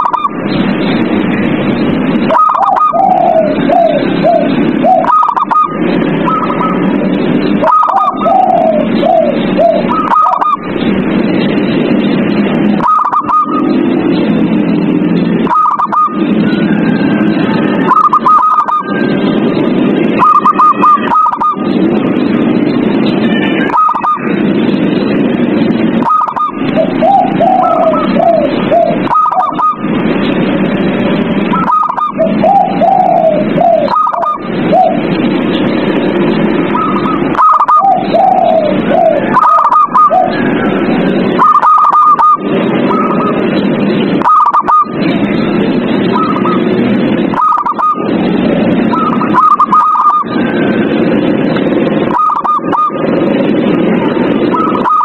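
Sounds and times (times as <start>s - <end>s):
doves cooing: 0.0s - 0.6s, 2.0s - 55.0s
loud steady background noise: 0.0s - 55.0s.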